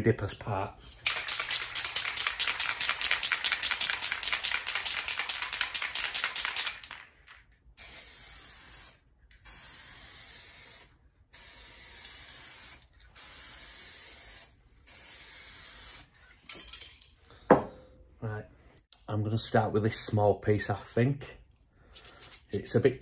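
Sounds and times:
aerosol can rattling when shaken: 0.9 - 7.9
aerosol spray hissing: 7.8 - 16.1.

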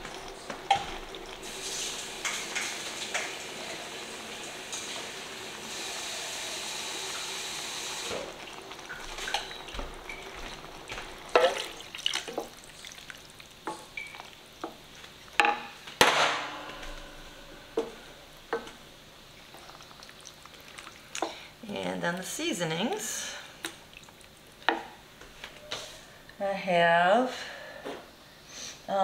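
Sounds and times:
sauce sizzling in a pot: 0.0 - 15.4.

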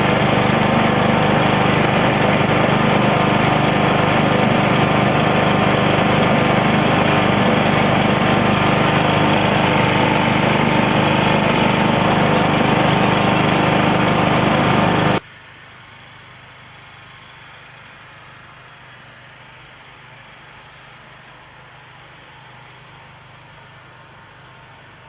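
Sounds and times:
lawn tractor engine running: 0.0 - 15.2.

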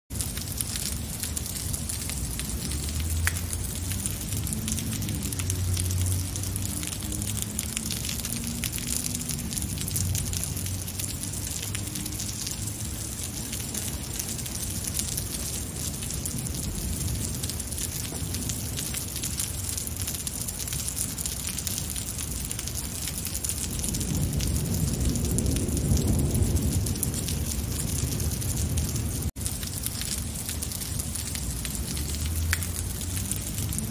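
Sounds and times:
heavy rain on pavement: 0.1 - 33.9
thunder rumble: 0.1 - 33.9.

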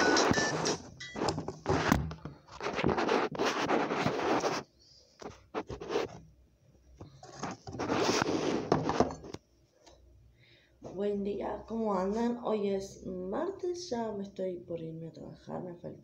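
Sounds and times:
phone scraping against microphone: 0.0 - 6.2, 7.1 - 9.4.

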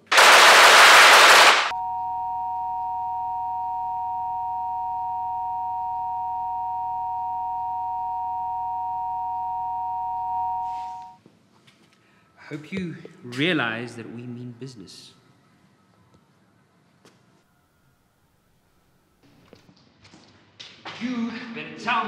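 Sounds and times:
loud burst of harsh noise: 0.0 - 1.7
high electronic tone: 1.7 - 11.2.

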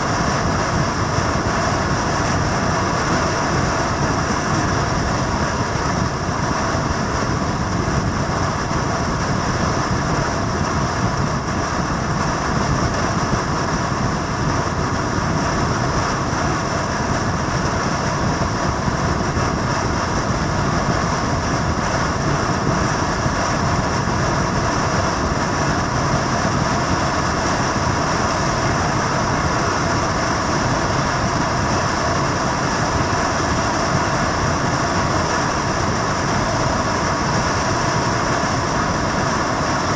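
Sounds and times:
steady vehicle drone: 0.0 - 39.9.

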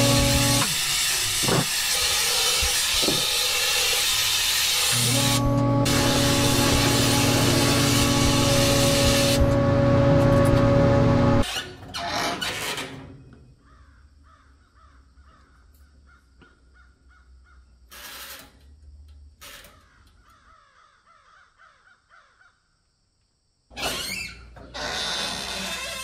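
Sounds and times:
loud noise: 4.9 - 11.5.

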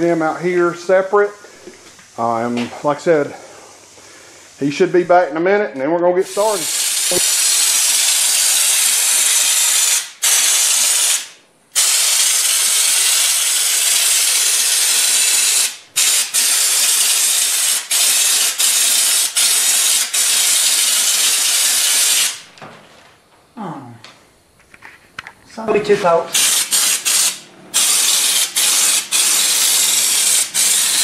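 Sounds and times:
spray gun hissing: 6.2 - 22.5, 26.3 - 31.0.

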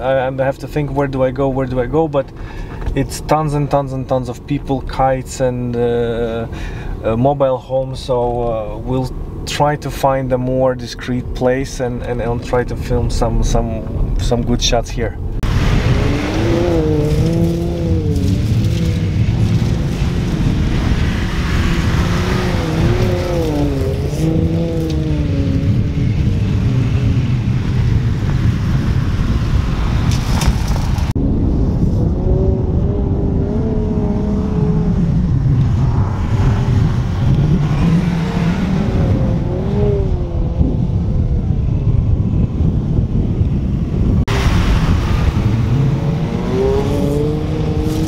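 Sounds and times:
car engine revving: 15.3 - 31.1, 31.9 - 41.4, 44.0 - 48.0
wheels spinning in sand: 15.4 - 31.1.

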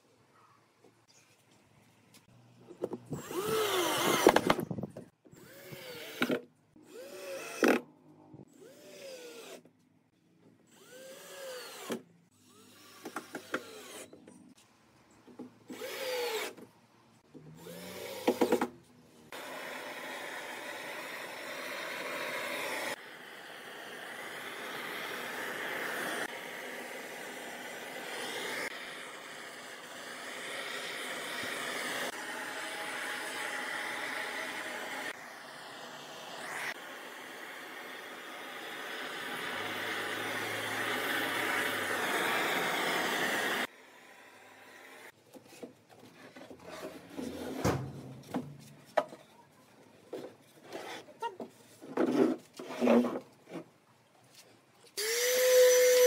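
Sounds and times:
cordless drill driving screws: 3.1 - 4.7, 5.4 - 7.8, 10.7 - 14.2, 15.7 - 16.6, 17.5 - 18.7, 19.3 - 23.0, 55.0 - 56.0.

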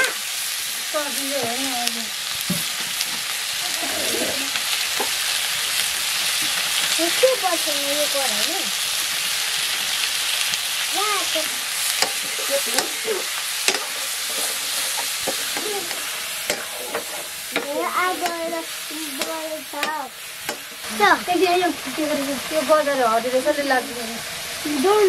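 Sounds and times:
chicken sizzling in a wok: 0.0 - 25.0
metal ladle knocking a pan: 12.0 - 18.5, 19.2 - 20.8.

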